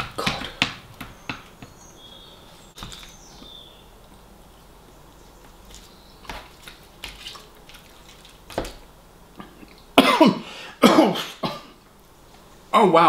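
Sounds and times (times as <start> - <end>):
man coughing groans: 10.0 - 11.8.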